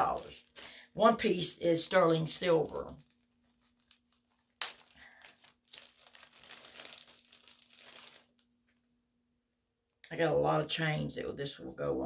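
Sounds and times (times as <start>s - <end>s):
packaging crinkling: 0.0s - 0.9s, 1.9s - 8.9s.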